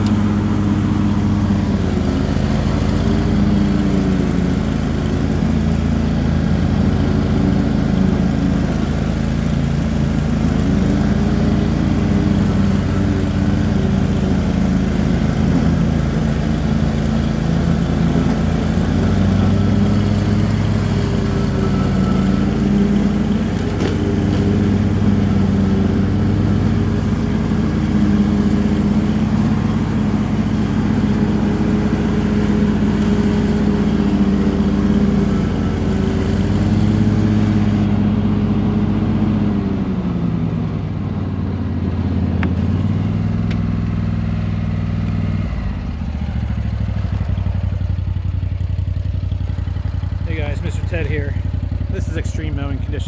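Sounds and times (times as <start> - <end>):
garden tractor mowing: 0.0 - 53.0.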